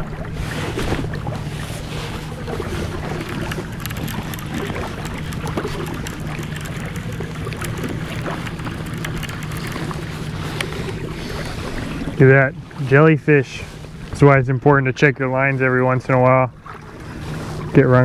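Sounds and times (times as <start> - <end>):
water noise: 0.0 - 18.0
wind: 0.0 - 18.0
electric motor humming: 2.9 - 12.2
light clicks: 3.2 - 10.8.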